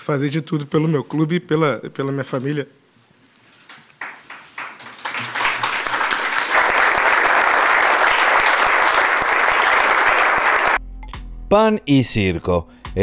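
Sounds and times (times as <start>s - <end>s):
audience clapping: 3.7s - 10.8s.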